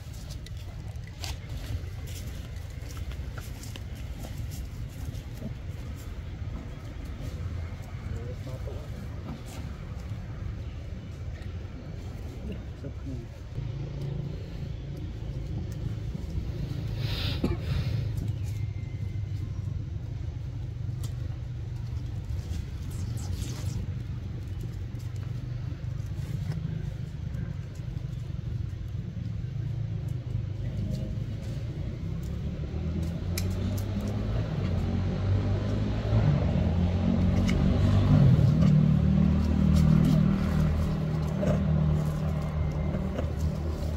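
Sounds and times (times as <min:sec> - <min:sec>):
steady low rumble: 0:00.0 - 0:35.1.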